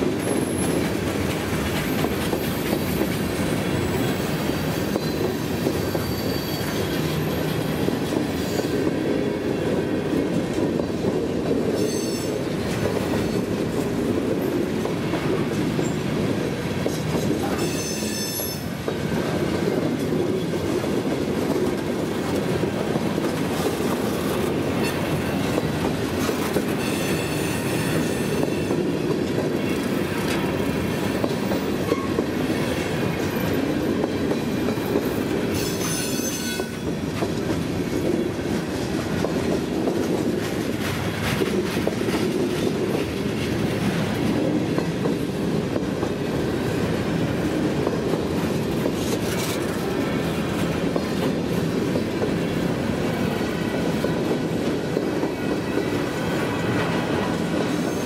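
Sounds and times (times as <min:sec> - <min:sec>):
train wheels rumbling on rails: 0:00.0 - 0:58.0
high-pitched wheel squeals: 0:04.3 - 0:07.5, 0:11.8 - 0:12.3, 0:17.5 - 0:18.7, 0:26.8 - 0:28.8, 0:35.6 - 0:36.8.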